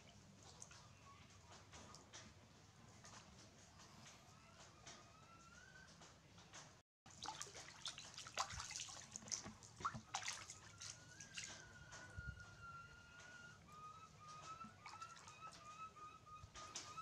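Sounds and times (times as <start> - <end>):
water splashing in a basin: 7.1 - 12.2, 14.4 - 15.7.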